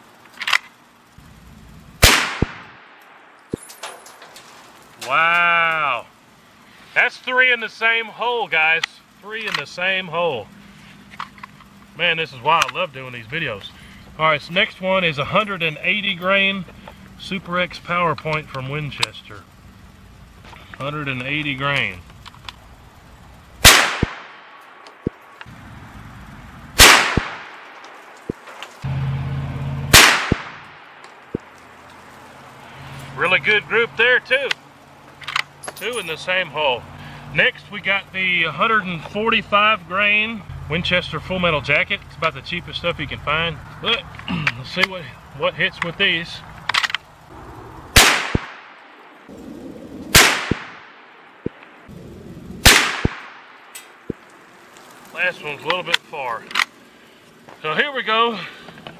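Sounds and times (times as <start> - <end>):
rifle shot: 2.0 - 3.3, 23.6 - 25.1, 26.8 - 27.8, 29.9 - 31.0, 47.4 - 48.8, 50.1 - 51.6, 52.6 - 53.6
shot ringing: 2.0 - 4.0, 23.6 - 24.6, 26.8 - 27.7, 29.9 - 31.0, 47.4 - 48.8, 50.1 - 51.0, 52.6 - 53.5.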